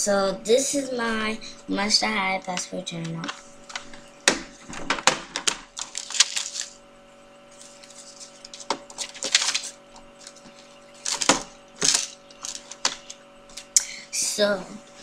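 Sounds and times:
faint steady hum: 0.0s - 15.0s
plastic clicks and rustles: 4.7s - 6.8s, 7.6s - 13.2s.

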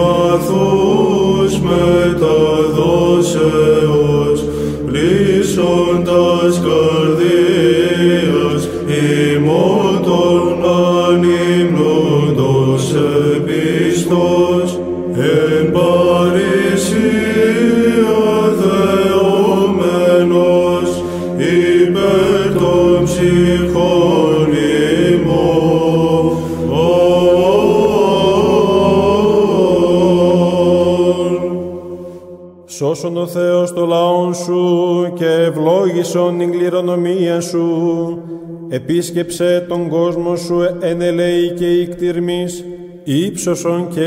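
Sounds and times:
men chanting melody: 0.0s - 32.1s
held drone note: 0.0s - 32.6s
breaths: 4.4s - 4.9s, 21.0s - 21.4s, 26.3s - 26.7s, 31.8s - 32.6s, 38.2s - 38.7s.

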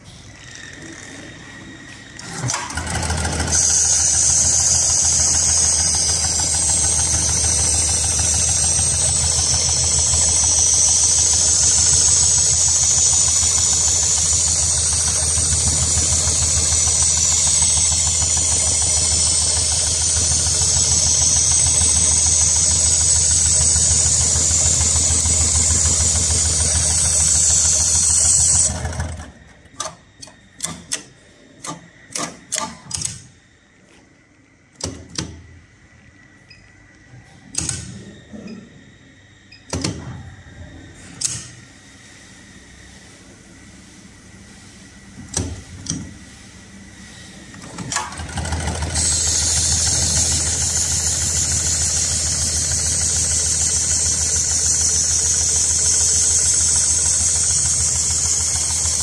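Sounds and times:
sewing machine running: 2.2s - 29.5s, 47.6s - 59.0s
sharp clicks and knocks: 29.7s - 33.3s, 34.8s - 35.4s.

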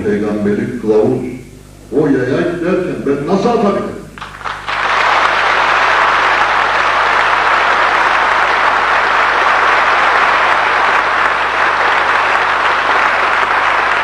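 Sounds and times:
crowd applauding: 4.2s - 14.0s.

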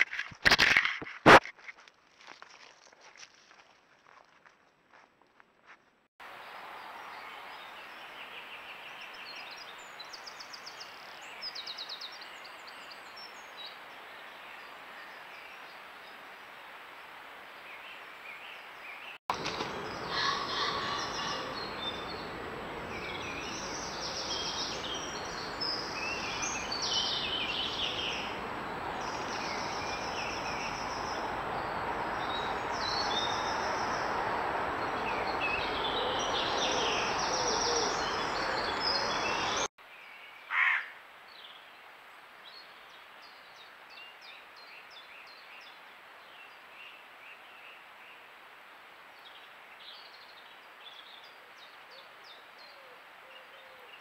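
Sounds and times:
songbirds singing: 17.5s - 48.3s
loud bird call: 19.3s - 22.3s.

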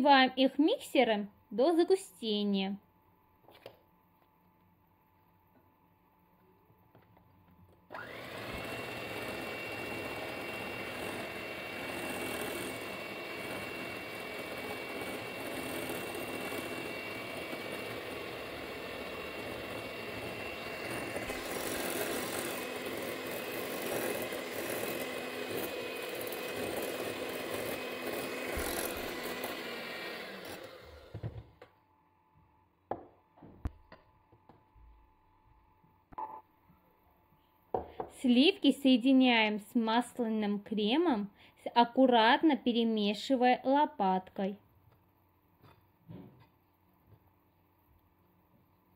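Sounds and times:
electric hand mixer whining: 7.9s - 31.4s.

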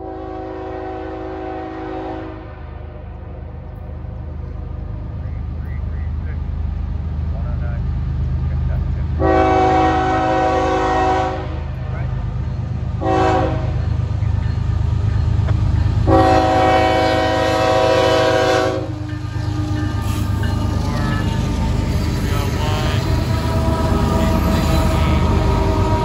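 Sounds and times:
locomotive air horn blasts: 0.0s - 2.6s, 9.2s - 11.6s, 13.0s - 13.8s, 16.0s - 20.5s, 21.8s - 26.0s.

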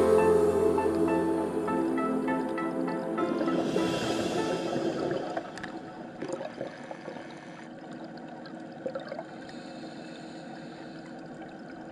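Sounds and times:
background music: 0.0s - 6.2s
muffled underwater water noise: 0.8s - 11.9s
short bubbly bursts: 3.2s - 9.5s.

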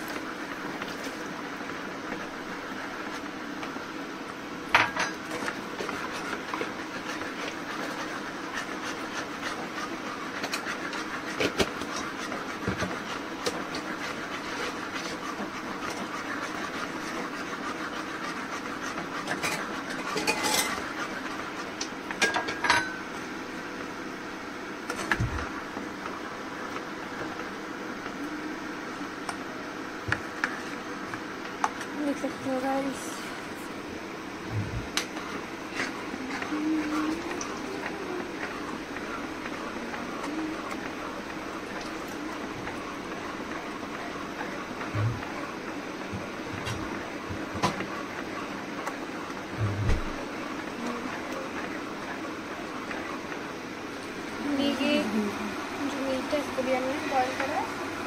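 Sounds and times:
metal utensils clinking against pots: 19.4s - 20.8s.

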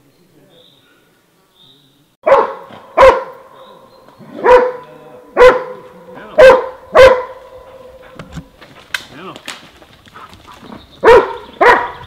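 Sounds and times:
hound barking: 2.2s - 8.3s, 10.2s - 12.0s.

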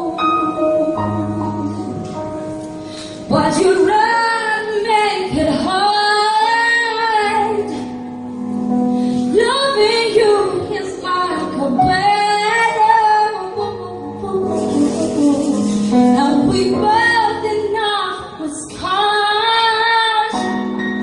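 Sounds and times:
live band playing: 7.5s - 18.6s.

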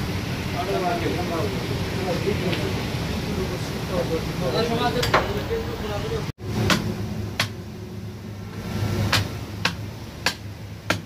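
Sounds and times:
steady low hum: 5.5s - 11.0s
cleaver chopping on wooden block: 6.6s - 7.6s, 9.1s - 11.0s.

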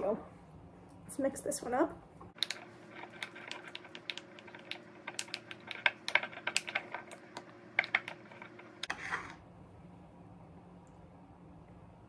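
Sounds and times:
spoon scraping glass jar: 2.4s - 9.4s.

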